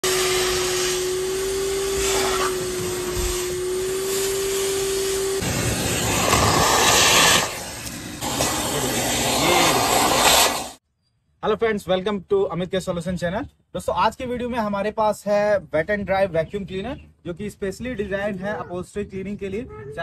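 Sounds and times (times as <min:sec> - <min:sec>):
vacuum cleaner running: 0:00.0 - 0:10.8.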